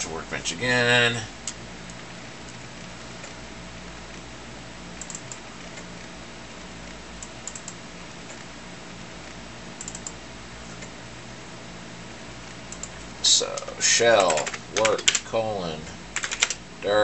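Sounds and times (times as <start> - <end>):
steady low hum: 0.0 - 17.0
computer mouse double-clicks: 9.8 - 10.2.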